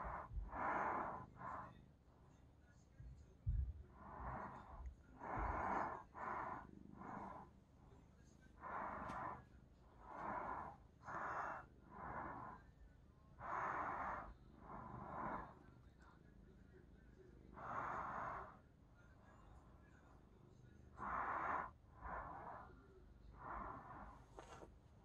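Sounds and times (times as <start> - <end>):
person snoring: 0.0 - 1.7, 3.9 - 7.5, 8.5 - 12.7, 13.4 - 15.6, 17.5 - 18.6, 21.0 - 22.7.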